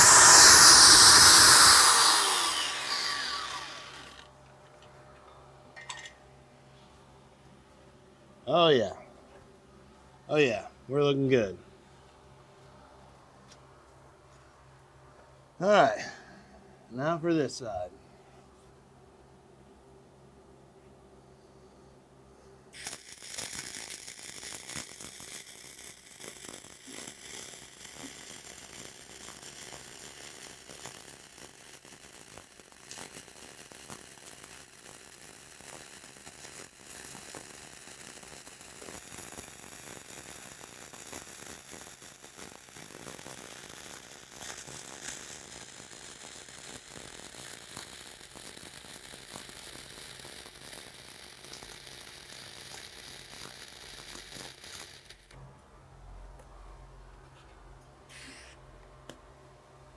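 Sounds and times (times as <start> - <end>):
welding arc hissing and popping: 0.0 - 4.3, 22.7 - 55.4, 58.1 - 58.6.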